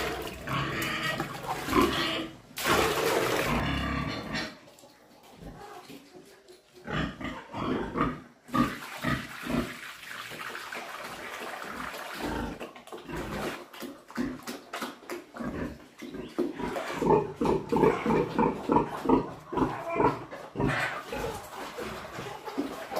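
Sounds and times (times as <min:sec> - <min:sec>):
pigs grunting: 0:00.0 - 0:02.5, 0:03.4 - 0:04.7, 0:06.8 - 0:09.8, 0:11.8 - 0:22.9
wet mash sloshing into trough: 0:00.0 - 0:06.1, 0:08.5 - 0:22.9.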